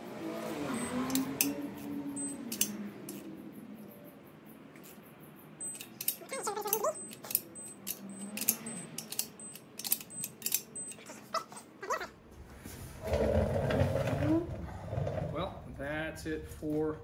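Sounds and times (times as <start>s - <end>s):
ratchet wrench clicking: 1.0s - 3.3s, 5.6s - 11.0s.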